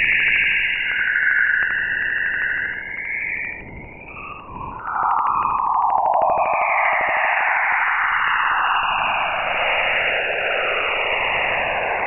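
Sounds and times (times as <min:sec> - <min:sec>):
eerie wavering hiss: 0:00.0 - 0:12.0.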